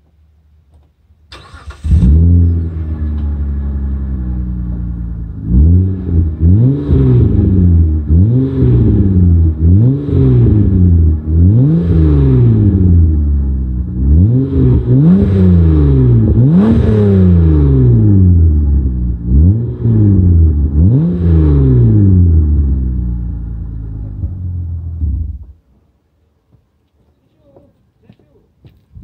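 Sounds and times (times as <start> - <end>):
car engine idling: 0.1 - 27.6
car engine cranking: 1.3 - 5.0
car engine revving: 1.3 - 25.6.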